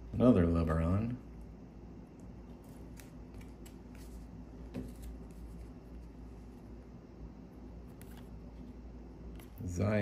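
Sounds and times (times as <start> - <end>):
low steady hum: 0.0 - 10.0
trading cards flicking and sliding: 2.5 - 6.1.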